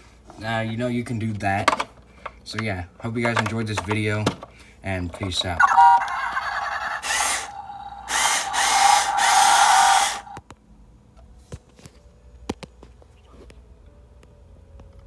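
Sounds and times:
clicks and knocks handling toy: 1.6 - 5.6
toy truck whirring engine noise: 5.2 - 10.4.

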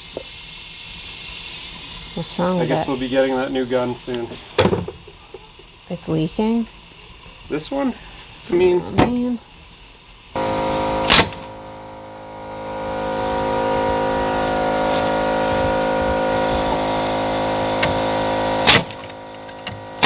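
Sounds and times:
motor running: 0.0 - 20.0
pneumatic nailer firing: 4.5 - 5.2, 10.4 - 13.5, 16.3 - 20.0.

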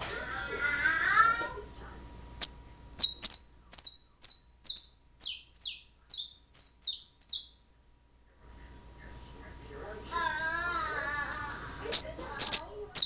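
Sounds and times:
canary chirping: 2.4 - 7.7, 11.5 - 13.0.

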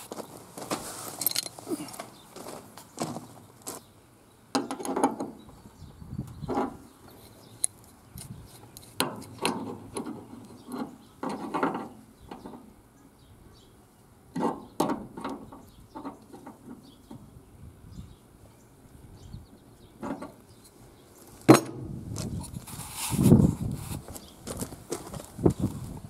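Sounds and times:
handling rubs scrapes and knocks: 0.0 - 3.8, 21.2 - 26.0.

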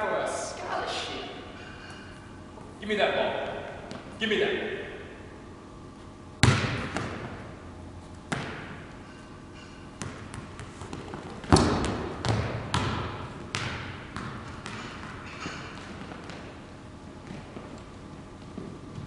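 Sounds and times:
basketball bouncing on wooden floor: 6.4 - 7.5, 8.3 - 8.8, 10.0 - 16.6.

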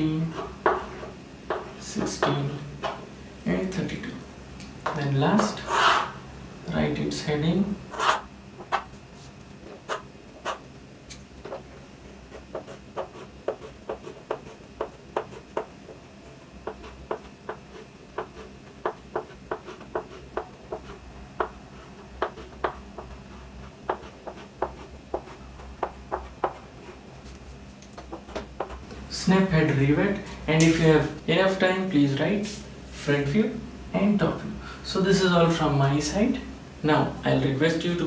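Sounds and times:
chalk tapping on blackboard: 0.4 - 3.0, 12.4 - 15.7, 16.6 - 21.6, 22.2 - 23.2, 23.8 - 26.6, 28.0 - 28.8.

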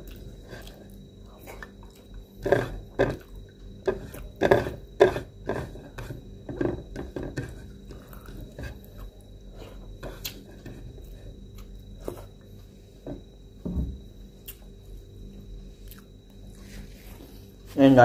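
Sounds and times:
man chewing food: 0.0 - 6.7, 7.3 - 13.0, 14.4 - 17.2
fingers working food on plate: 2.4 - 7.8.

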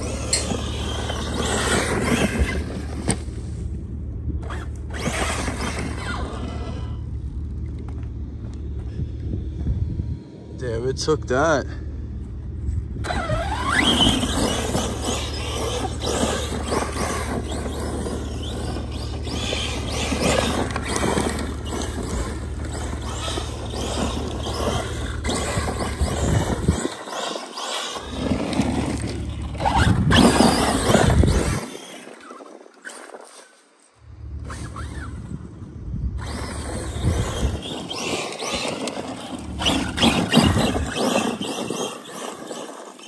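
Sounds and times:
electric motor whining: 0.0 - 3.8, 4.4 - 8.9, 12.7 - 43.0
tyres scrabbling on loose dirt: 0.0 - 9.0, 10.6 - 43.0.

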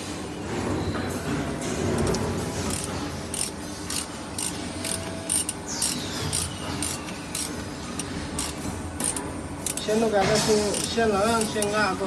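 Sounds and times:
ratchet wrench clicking: 2.7 - 10.0, 10.7 - 11.8.

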